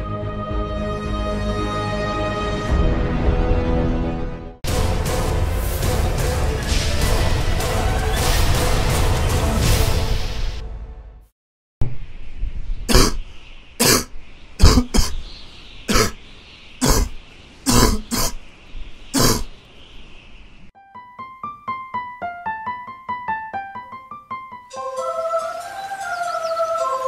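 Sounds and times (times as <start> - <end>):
person coughing: 12.9 - 13.2, 13.8 - 15.2, 15.9 - 16.2, 16.8 - 18.4, 19.2 - 19.5
quick piano notes: 20.8 - 24.8.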